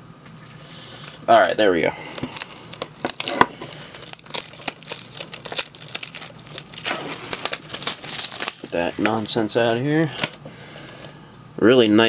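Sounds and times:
plastic wrap crinkling: 0:01.4 - 0:11.0.

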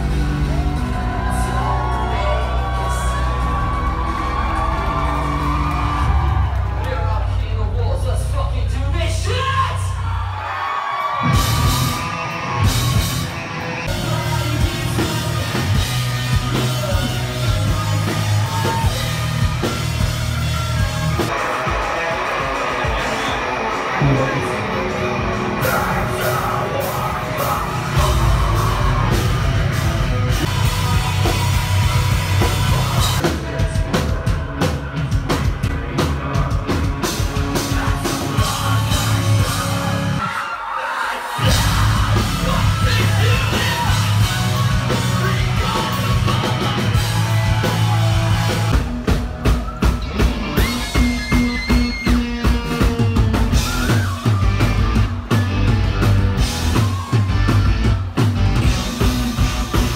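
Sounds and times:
pounding drum kit: 0:00.0 - 0:10.1, 0:11.0 - 0:40.2, 0:41.3 - 0:59.9
loud rock music: 0:00.0 - 0:59.9
yelled vocals: 0:09.1 - 0:48.9
electric guitars: 0:11.0 - 0:40.3, 0:41.4 - 0:59.9.

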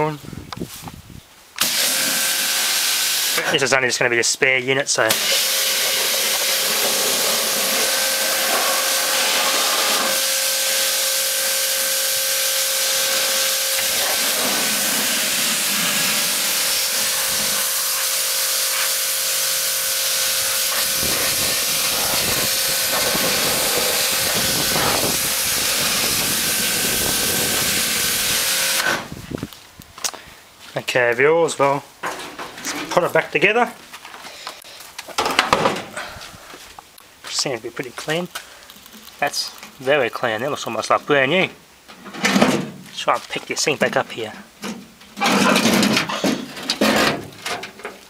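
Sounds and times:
pressure washer spraying metal: 0:01.6 - 0:03.6, 0:05.1 - 0:29.1
steady hum: 0:10.7 - 0:29.5.

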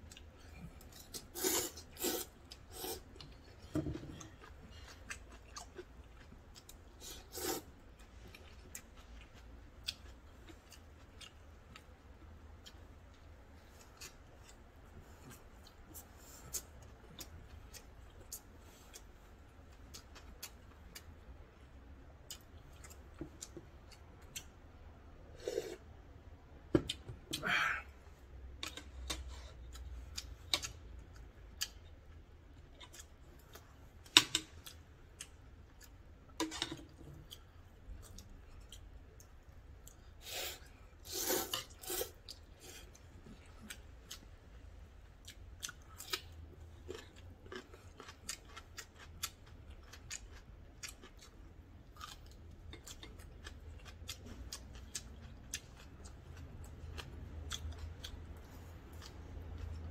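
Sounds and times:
chewing: 0:00.0 - 0:06.8, 0:45.2 - 0:59.9.

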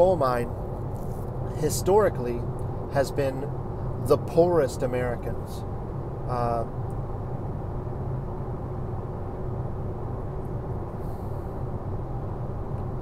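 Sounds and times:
car cabin road noise: 0:00.0 - 0:06.8.

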